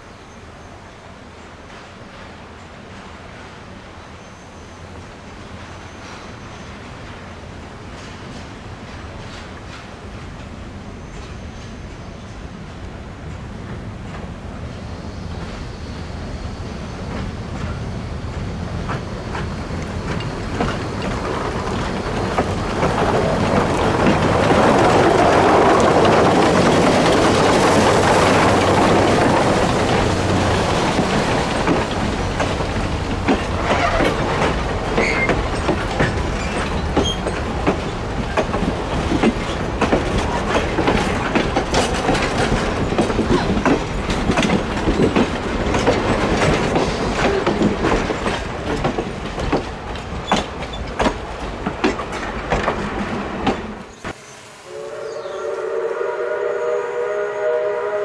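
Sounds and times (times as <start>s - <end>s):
steam locomotive passing: 0.0s - 58.0s
wheels clicking over rail joints: 17.1s - 54.1s.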